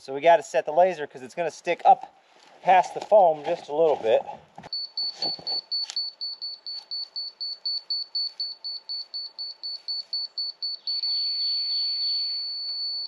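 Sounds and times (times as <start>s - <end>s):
laser detector steady tone: 4.7s - 13.0s
laser detector rapid beeping: 4.8s - 13.0s.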